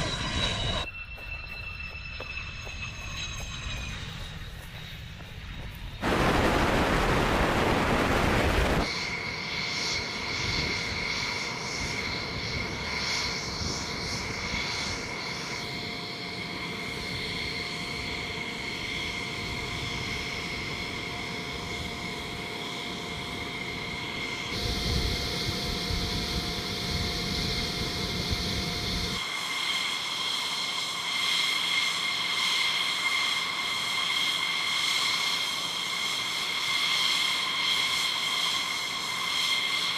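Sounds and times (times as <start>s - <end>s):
fighter jet taking off: 0.0s - 15.7s
jet engines whining: 0.0s - 39.9s.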